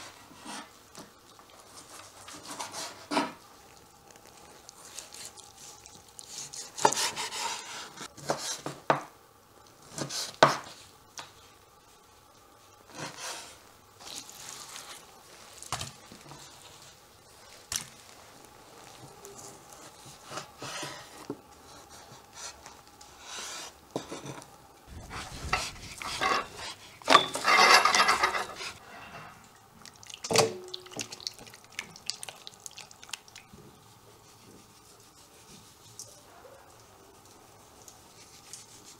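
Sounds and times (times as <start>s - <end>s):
steel bowls clattering: 25.5s - 29.4s.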